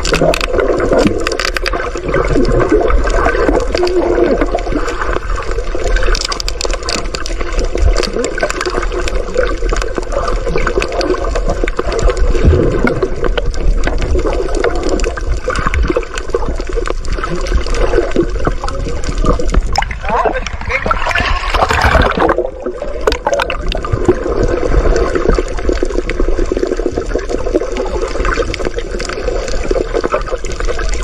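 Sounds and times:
bubbling: 0.0s - 31.0s
underwater gurgling and rushing: 0.0s - 31.0s
small clicks: 6.0s - 10.0s.

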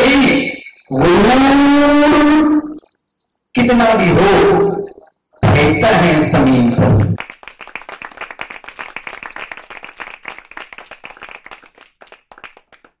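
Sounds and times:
audience clapping: 7.0s - 13.0s.

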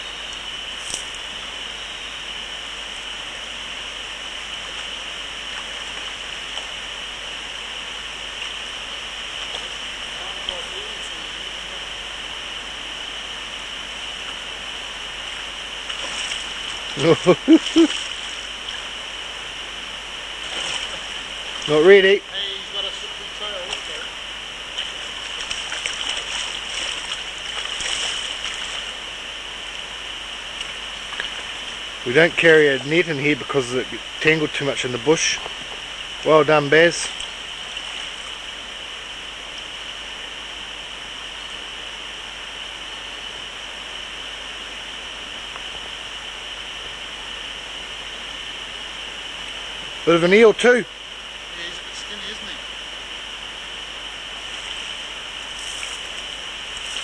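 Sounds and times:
stream water running over shallows: 0.0s - 57.0s
fish splashing at surface: 20.4s - 21.6s, 24.8s - 29.0s.

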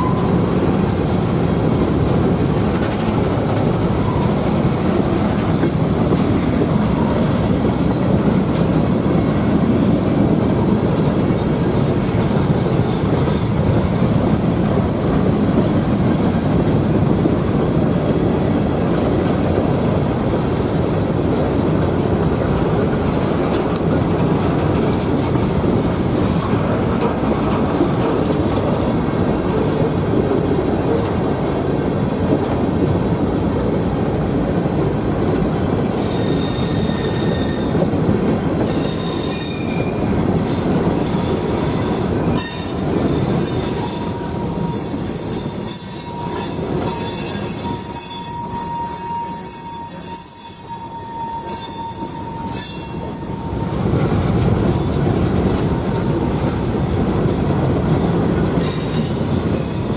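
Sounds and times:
train wheels rumbling on rails: 0.0s - 59.9s
high-pitched wheel squeals: 35.9s - 37.8s, 38.6s - 40.1s, 40.9s - 53.9s.

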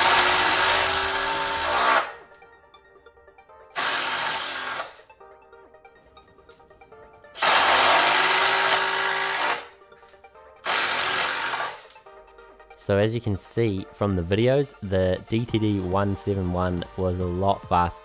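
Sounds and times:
impact driver hammering screws: 3.8s - 5.0s, 7.4s - 9.6s, 10.7s - 11.8s.

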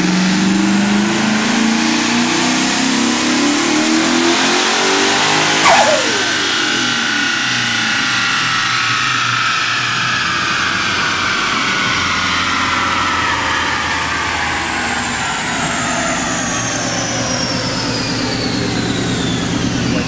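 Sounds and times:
car engine running: 5.6s - 6.8s
high whine falling in pitch: 5.6s - 6.9s.

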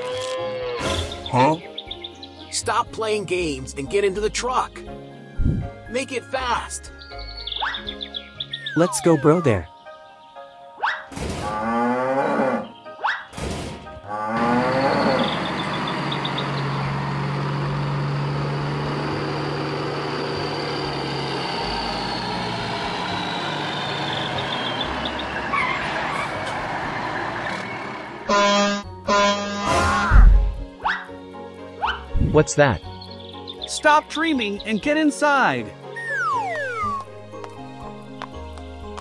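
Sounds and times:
truck engine humming: 14.2s - 32.2s, 35.7s - 39.0s
loud tooting: 28.3s - 30.2s.

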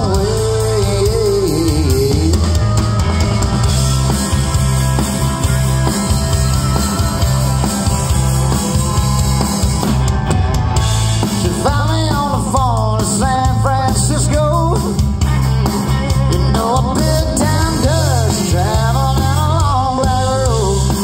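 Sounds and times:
person singing lead vocal: 0.0s - 3.8s, 11.3s - 21.0s
bass guitar: 0.0s - 21.0s
drum kit: 0.0s - 21.0s
electric guitars: 0.0s - 21.0s.

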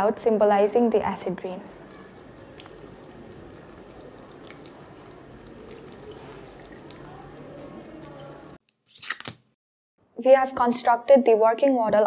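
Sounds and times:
water trickling and dripping: 1.6s - 8.6s.

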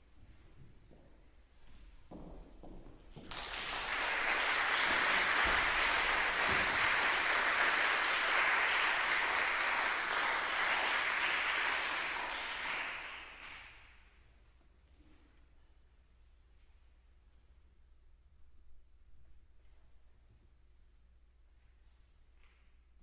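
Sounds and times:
audience applauding: 3.2s - 14.0s.

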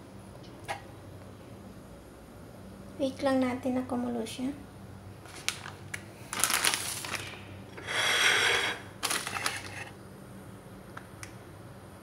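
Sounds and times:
plastic packet crinkling: 5.3s - 7.4s, 9.0s - 9.8s.

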